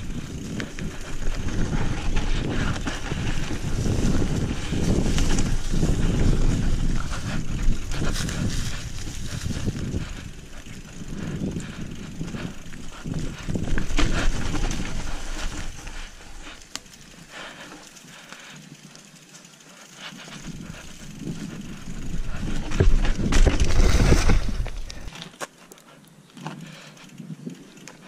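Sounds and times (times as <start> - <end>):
bike knocks and rattles: 0.0 - 17.0, 20.8 - 25.1
bike tyre noise on ground: 0.0 - 28.0.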